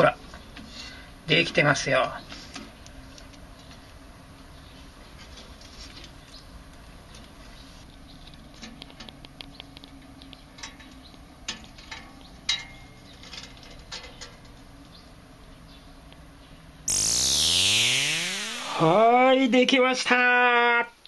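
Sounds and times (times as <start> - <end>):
low steady hum: 0.0 - 19.6
faint clicks and ticks: 6.0 - 12.7
electronic swoosh: 16.9 - 19.0.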